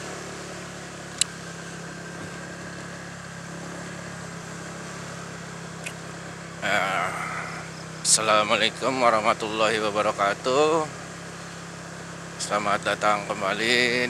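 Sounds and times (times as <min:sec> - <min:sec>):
motorcycle engine running: 0:00.0 - 0:14.0
sharp click: 0:01.2 - 0:01.4, 0:05.8 - 0:06.0.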